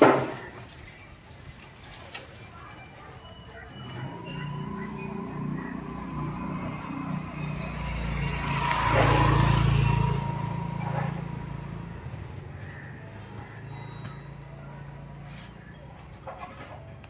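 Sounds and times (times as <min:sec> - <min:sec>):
motor vehicle passing by: 0:03.8 - 0:15.9.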